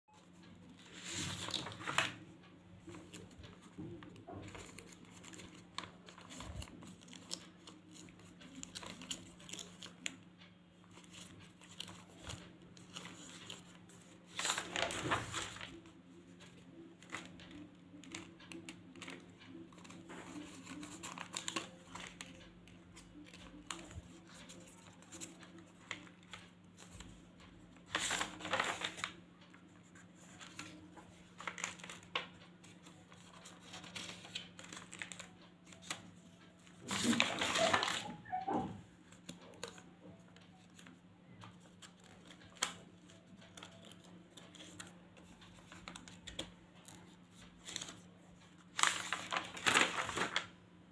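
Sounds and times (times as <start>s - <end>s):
paper rustling and crinkling: 0.2s - 50.6s
page turns: 0.8s - 2.2s, 11.0s - 15.9s, 27.9s - 29.5s, 36.7s - 38.7s, 48.8s - 50.5s.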